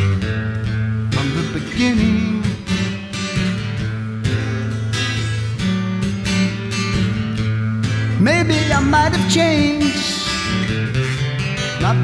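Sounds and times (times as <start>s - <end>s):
acoustic guitar strumming: 0.0s - 12.0s
person singing: 8.2s - 10.5s, 11.7s - 12.0s.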